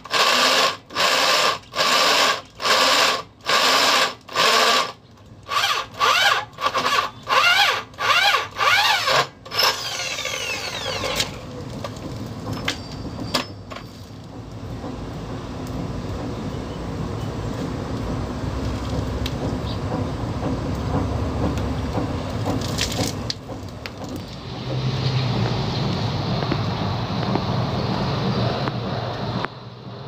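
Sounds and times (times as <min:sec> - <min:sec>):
electric drill cutting concrete: 0:00.0 - 0:11.4.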